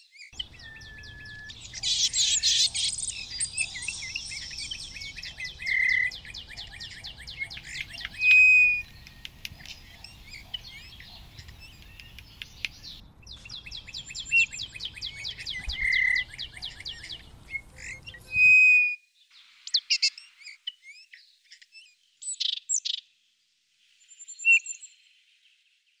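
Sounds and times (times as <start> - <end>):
bird chirps: 0.0 - 23.1
short whistled bird notes: 0.4 - 10.0, 13.4 - 18.9
bird trilling: 0.4 - 18.7.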